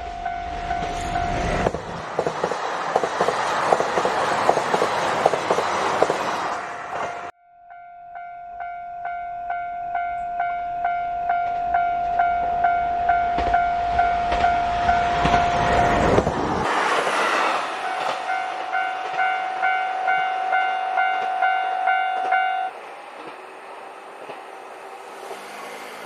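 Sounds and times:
passing train rumble and clatter: 0.0 - 7.4, 9.5 - 26.0
level crossing alarm dinging: 7.0 - 16.1, 17.8 - 22.7.

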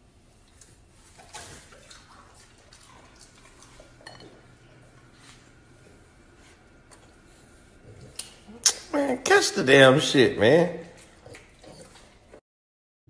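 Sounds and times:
knife clinking against a plate: 4.0 - 4.4.

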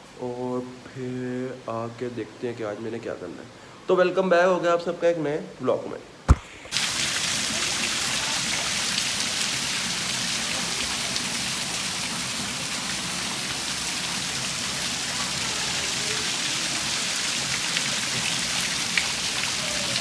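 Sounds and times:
heavy rain on a rooftop: 6.7 - 20.0
water pouring off a roof: 6.7 - 20.0.

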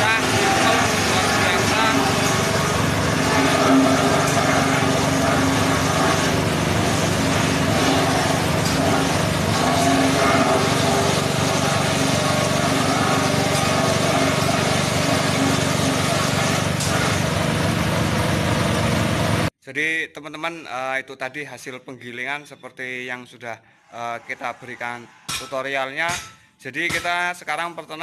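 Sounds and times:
blades chopping stalks: 0.0 - 17.4
small engine drone: 0.0 - 19.5.

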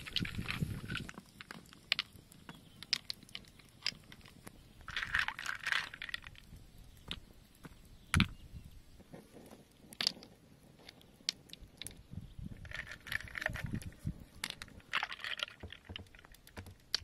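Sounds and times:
snail shells clicking: 0.0 - 8.5, 9.3 - 17.0.

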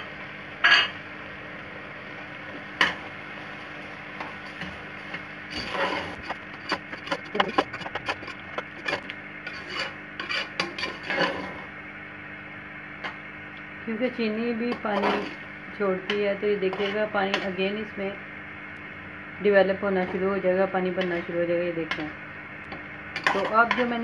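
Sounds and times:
metal spoon scraping metal pot: 5.5 - 11.5, 14.9 - 15.4, 16.7 - 17.5.

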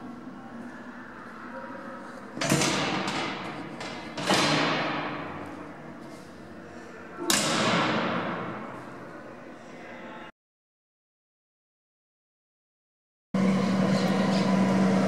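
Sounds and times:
metal gates banging with echo: 2.4 - 5.8, 7.2 - 8.8.

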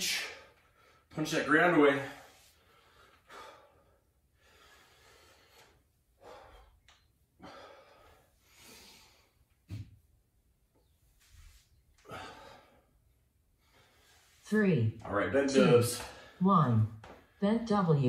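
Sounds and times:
man breathing heavily: 0.0 - 1.1, 1.9 - 9.7, 11.5 - 14.4, 15.9 - 16.4.

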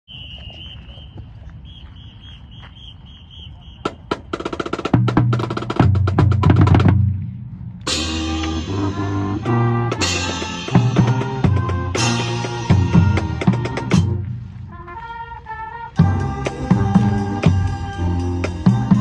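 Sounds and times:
marching band music: 3.8 - 7.2, 7.9 - 19.0
snare and bass drum strokes: 3.8 - 15.1, 16.0 - 19.0.

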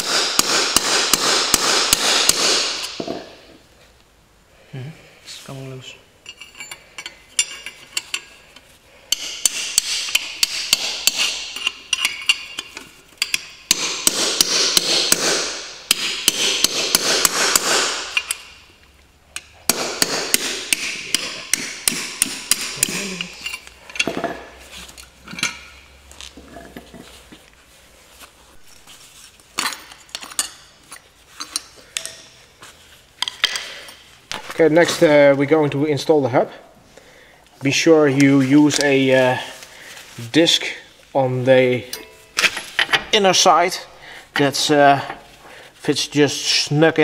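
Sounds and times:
hammer striking metal chisel: 0.0 - 3.3, 9.1 - 18.6, 19.4 - 24.4.

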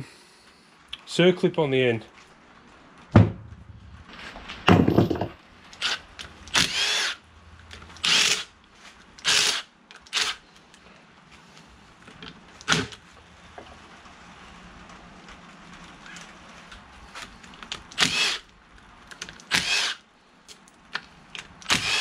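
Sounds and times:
short bursts of tool noise: 9.2 - 10.4, 18.0 - 18.4, 19.5 - 20.0, 21.7 - 22.0.

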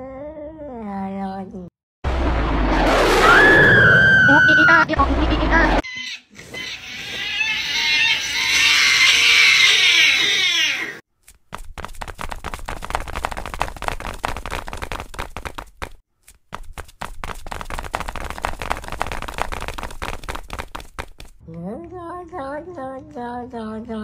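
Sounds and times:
cats screeching and yowling: 3.2 - 4.8, 5.8 - 11.0.

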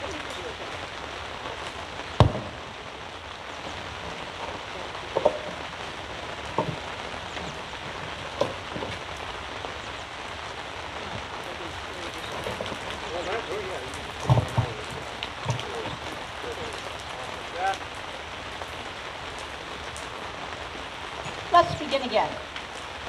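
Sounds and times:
rain on fabric canopy: 0.0 - 23.0
microphone handling knocks: 14.1 - 16.1.

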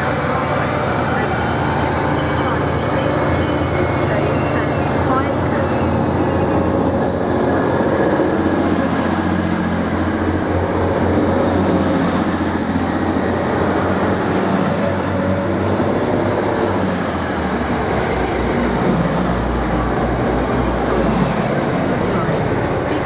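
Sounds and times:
train wheels rumbling: 0.0 - 23.0
high-pitched train squeal: 0.9 - 18.6.

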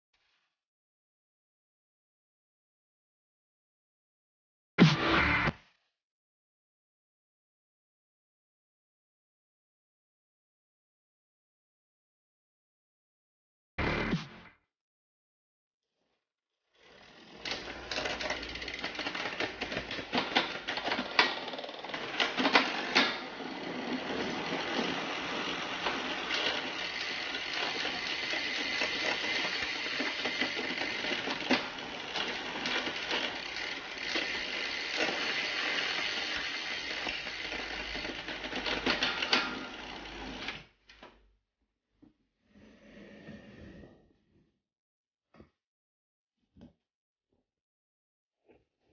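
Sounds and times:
bicycle chain rattling: 16.9 - 40.5.

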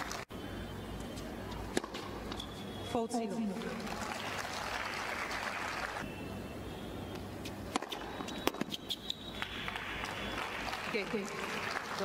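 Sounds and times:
tennis ball struck by rackets: 1.7 - 2.2, 7.7 - 8.8.

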